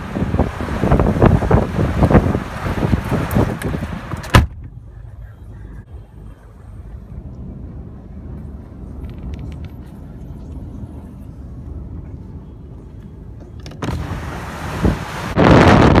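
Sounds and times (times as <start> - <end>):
wind rushing on microphone: 0.0 - 4.8, 13.8 - 16.0
car cabin rumble: 0.0 - 16.0.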